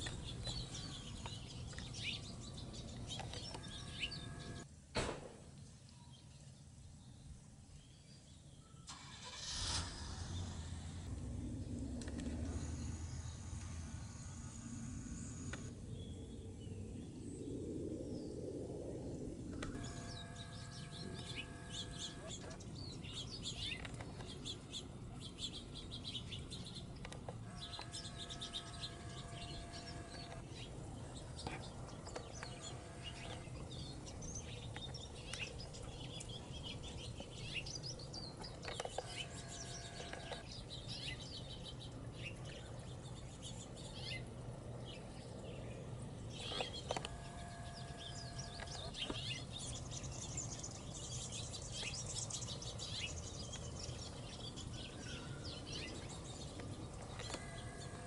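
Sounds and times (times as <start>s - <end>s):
faint low hum: 0.0s - 58.0s
songbirds chirping: 0.0s - 58.0s
steady-pitched bird call: 19.6s - 30.8s.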